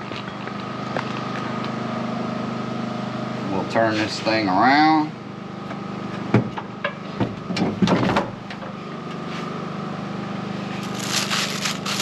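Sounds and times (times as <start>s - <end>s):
plastic wrap crinkling: 10.8s - 12.0s.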